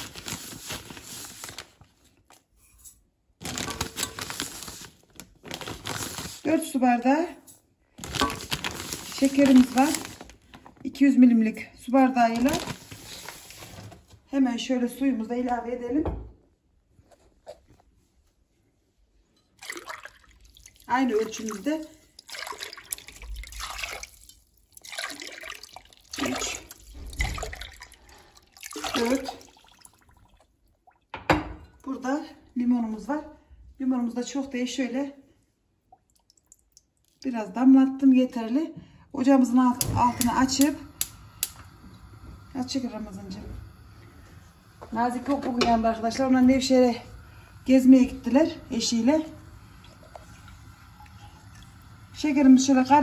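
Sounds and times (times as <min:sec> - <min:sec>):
water pouring and splashing into pot: 0:00.0 - 0:02.5, 0:03.4 - 0:06.6, 0:07.9 - 0:10.8, 0:12.2 - 0:13.9, 0:19.5 - 0:31.9, 0:35.9 - 0:37.3, 0:39.8 - 0:53.0
sugar pouring into metal pot: 0:08.2 - 0:10.4, 0:40.2 - 0:53.0.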